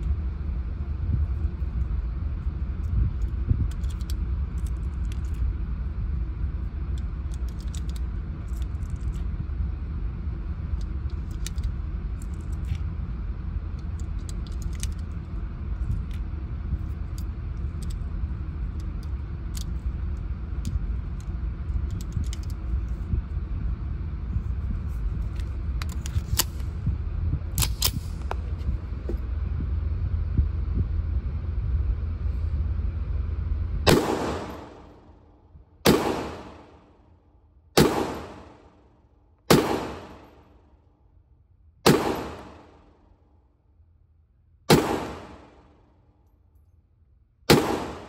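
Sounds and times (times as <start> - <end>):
low rumble: 0.0 - 48.0
cartridges clicking into magazine: 3.2 - 5.4, 7.0 - 9.2, 10.8 - 12.7, 13.8 - 15.2, 27.5 - 28.4
pistol metallic clicks: 3.2 - 5.5, 6.9 - 9.2, 27.5 - 28.4, 35.9 - 36.8, 37.8 - 38.8, 39.5 - 40.6, 41.8 - 42.9, 44.7 - 45.8, 47.5 - 48.0.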